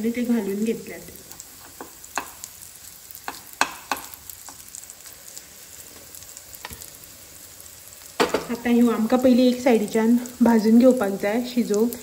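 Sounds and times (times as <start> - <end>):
omelettes sizzling in hot oil: 0.0 - 12.0
spoon tapping a pan: 1.3 - 2.5, 3.2 - 4.6, 8.2 - 8.6.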